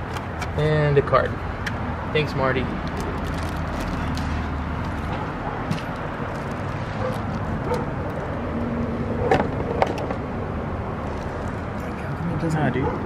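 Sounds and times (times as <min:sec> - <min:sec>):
outdoor background noise: 0:00.0 - 0:13.0.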